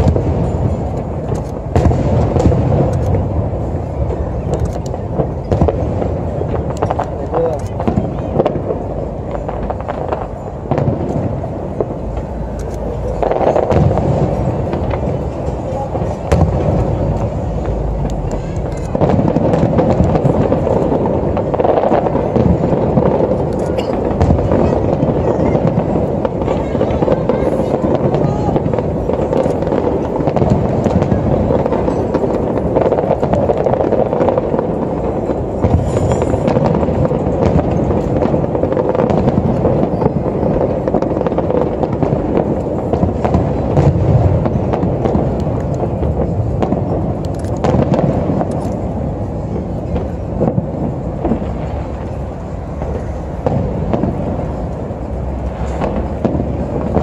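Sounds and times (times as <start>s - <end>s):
fireworks booming: 0.0s - 57.0s
fireworks crackling: 0.0s - 57.0s.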